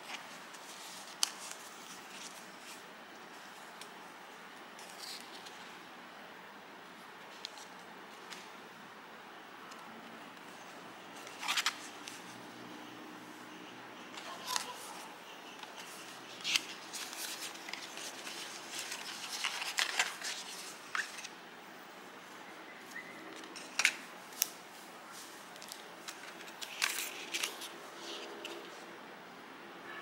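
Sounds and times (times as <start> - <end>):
paper rustling: 0.0 - 3.6, 11.2 - 12.3, 14.1 - 21.3, 22.9 - 28.8.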